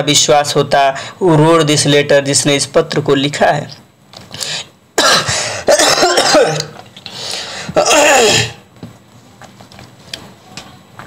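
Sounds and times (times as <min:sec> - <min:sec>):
man sneezing: 0:05.0 - 0:06.8, 0:07.8 - 0:08.6
breathy intake: 0:07.0 - 0:07.8.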